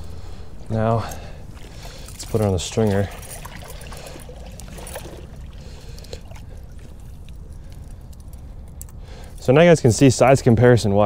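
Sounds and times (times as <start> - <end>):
steady low rumble: 0.0 - 11.0
river water splashing and trickling: 1.0 - 9.4.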